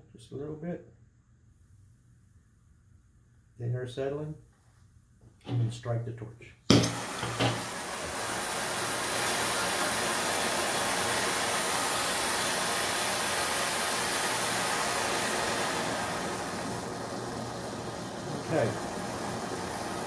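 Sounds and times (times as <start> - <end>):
brazing torch hissing: 6.7 - 20.0.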